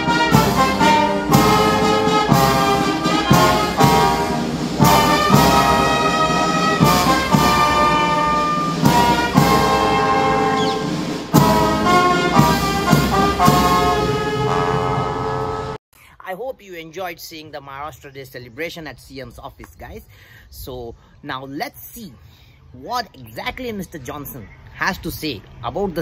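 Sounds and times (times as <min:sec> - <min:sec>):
brass band playing slow tune: 0:00.0 - 0:15.8.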